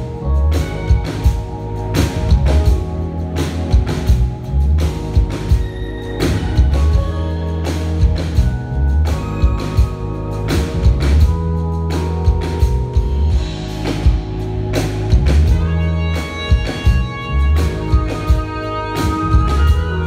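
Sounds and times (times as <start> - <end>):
drum kit hits: 0.0 - 20.0
electric bass line: 0.0 - 20.0
keyboard chords: 0.0 - 20.0
live jazz band: 0.0 - 20.0.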